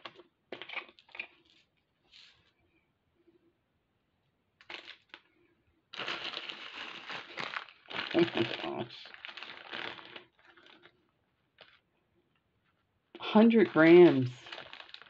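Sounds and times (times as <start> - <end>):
bead packets clicking and rustling: 4.6 - 5.3, 5.9 - 11.8, 13.2 - 15.0
plastic bag crinkling: 4.6 - 5.3, 5.9 - 11.8, 13.2 - 15.0.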